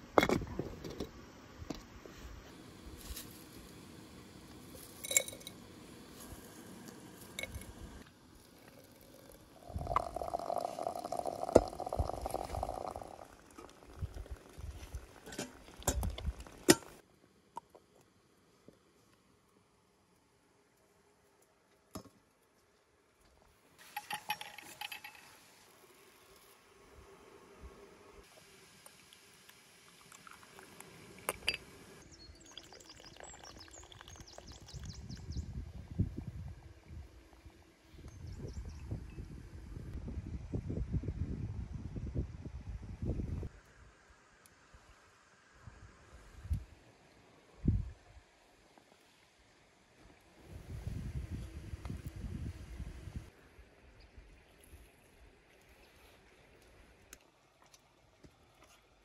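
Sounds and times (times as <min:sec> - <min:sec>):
hot water pouring into teapot: 0:03.0 - 0:17.0, 0:23.8 - 0:26.6, 0:28.2 - 0:35.2.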